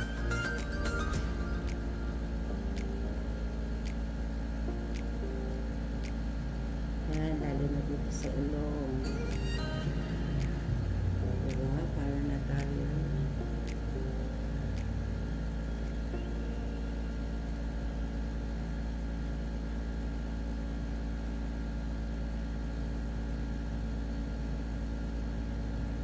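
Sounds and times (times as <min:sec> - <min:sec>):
low mechanical hum: 0:00.0 - 0:26.0
faint tick: 0:06.0 - 0:06.2.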